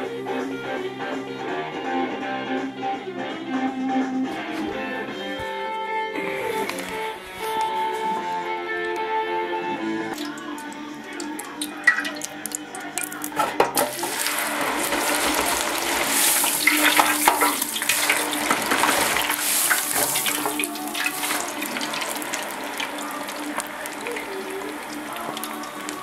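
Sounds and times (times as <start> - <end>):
hot oil hissing and bubbling: 10.2 - 26.0.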